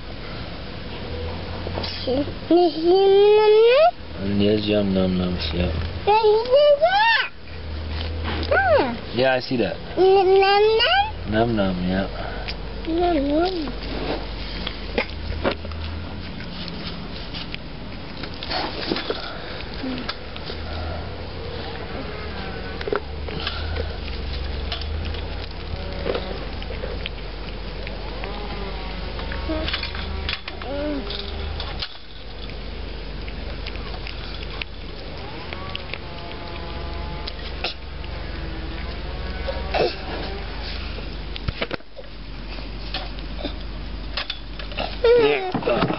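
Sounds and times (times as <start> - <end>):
low steady background hum: 0.0 - 45.9
cat chewing and smacking: 11.3 - 45.1
cat chewing wet clicks: 22.8 - 29.5, 31.5 - 39.2.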